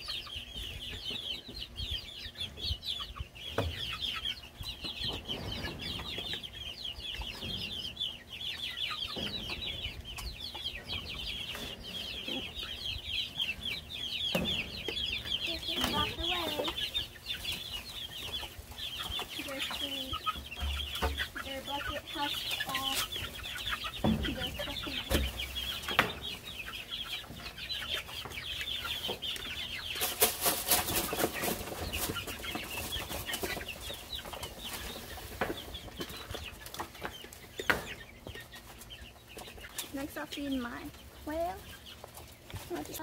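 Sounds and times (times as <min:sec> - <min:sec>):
chickens peeping and clucking: 0:00.0 - 0:43.0
knocks and rustling: 0:23.9 - 0:26.4.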